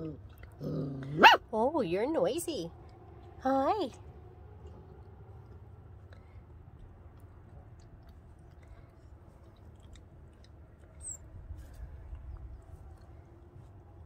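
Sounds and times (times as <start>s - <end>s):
steady low rumble: 0.0s - 14.0s
puppies play-wrestling and chewing: 4.0s - 14.0s.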